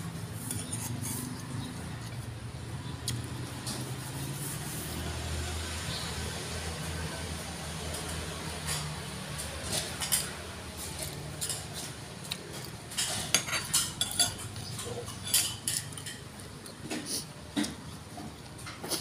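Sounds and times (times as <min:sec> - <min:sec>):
spoon and chopsticks clinking bowl: 0:12.9 - 0:16.3.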